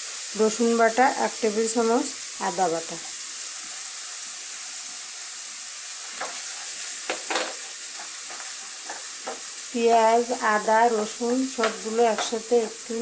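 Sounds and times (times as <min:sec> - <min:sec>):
onion sizzling in hot oil: 0:00.0 - 0:13.0
wooden spatula scraping pan: 0:06.1 - 0:09.6, 0:11.6 - 0:12.9.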